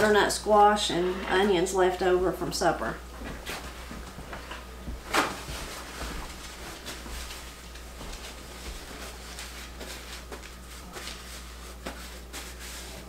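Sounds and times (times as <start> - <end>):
paper towel rustling: 3.1 - 13.0.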